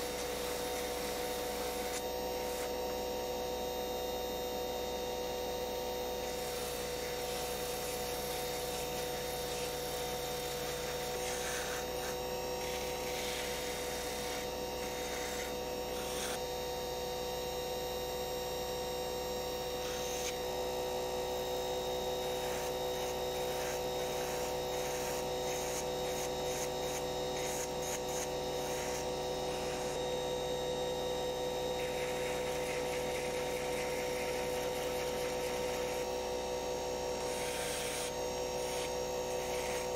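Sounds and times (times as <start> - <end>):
rotary tool whining: 0.0 - 39.9
sanding drum rasping on wood: 31.8 - 36.0.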